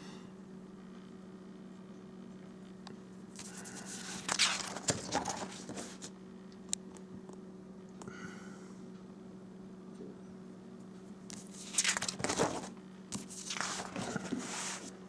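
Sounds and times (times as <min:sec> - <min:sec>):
paper page rustling: 0:03.4 - 0:06.1, 0:11.3 - 0:15.0.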